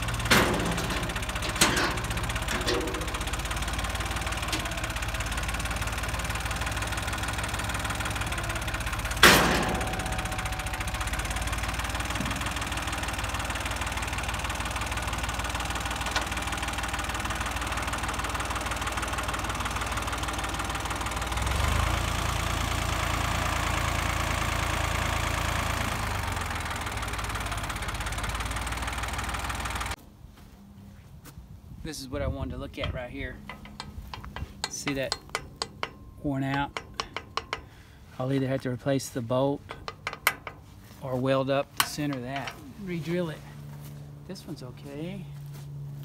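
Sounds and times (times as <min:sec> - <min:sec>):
loud metal clank: 0:00.0 - 0:04.9, 0:07.4 - 0:13.1, 0:32.8 - 0:37.9, 0:39.6 - 0:40.8, 0:41.6 - 0:42.9
tractor diesel engine running: 0:00.0 - 0:30.6, 0:31.6 - 0:46.0.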